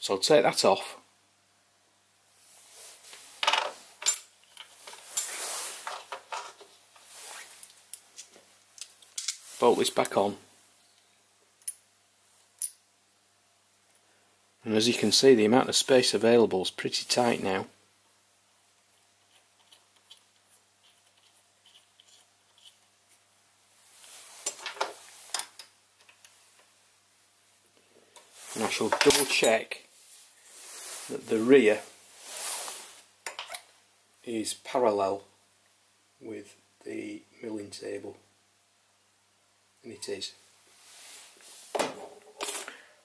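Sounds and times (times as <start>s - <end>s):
metallic clinks and taps: 12.6s - 12.8s.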